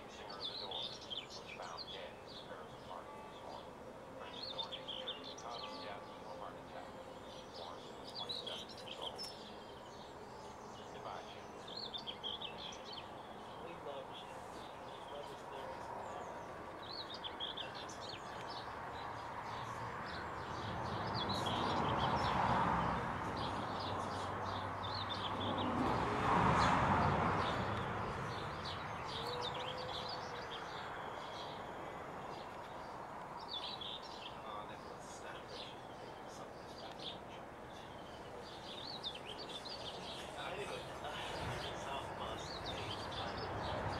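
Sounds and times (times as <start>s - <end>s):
goldfinches twittering: 0.0s - 26.0s
broad rushing noise: 0.0s - 43.9s.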